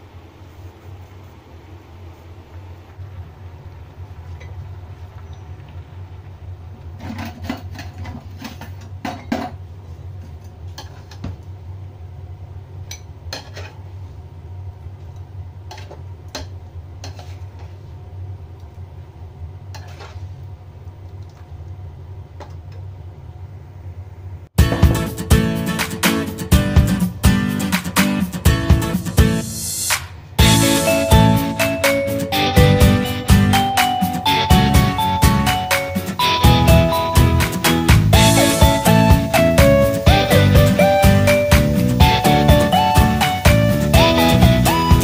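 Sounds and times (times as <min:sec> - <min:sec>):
steady low hum: 0:00.0 - 0:45.0
guitar music: 0:24.6 - 0:45.0.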